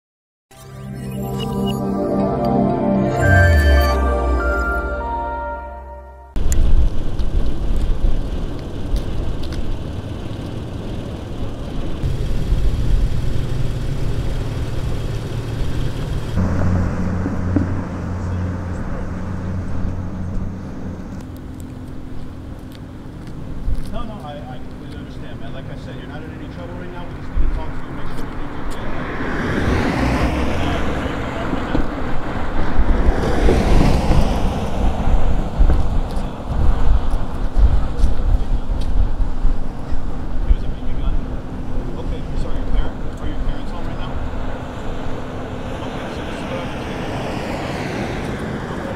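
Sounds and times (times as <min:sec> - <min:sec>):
traffic noise: 0:01.2 - 0:48.9
vehicle engine hum: 0:06.3 - 0:48.9
wind buffeting microphone: 0:31.6 - 0:40.4.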